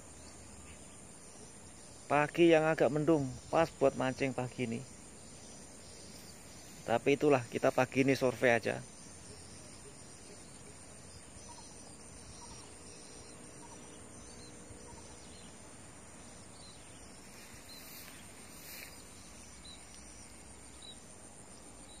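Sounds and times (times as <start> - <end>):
insect chirps: 0.0 - 22.0
insect drone: 0.0 - 22.0.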